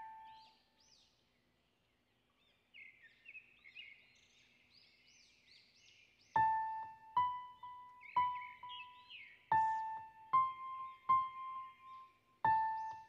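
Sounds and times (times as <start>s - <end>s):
birds chirping: 6.0s - 13.0s.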